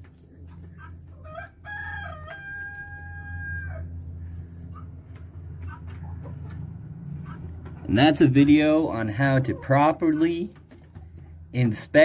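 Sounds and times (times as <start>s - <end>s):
steady low hum: 0.0s - 9.2s
rooster crowing: 1.1s - 4.0s
faint clucks: 4.2s - 7.8s.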